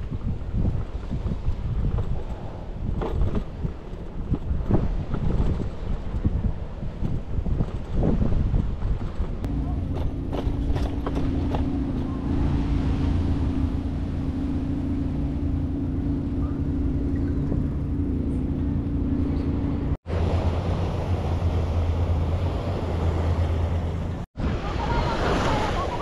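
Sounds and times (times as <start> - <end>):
constant low hum: 0.0 - 24.3
wind on microphone: 0.0 - 26.0
waves washing on rocky shore: 20.1 - 26.0.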